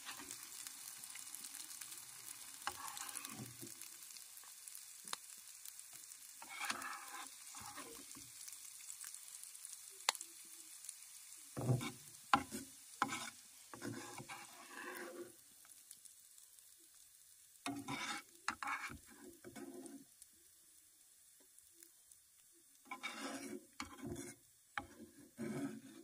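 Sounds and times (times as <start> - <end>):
metal spatula scraping a pan: 0.0 - 3.9, 6.4 - 8.5, 11.6 - 15.4, 17.6 - 20.1, 22.8 - 26.0
oil sizzling: 0.0 - 26.0.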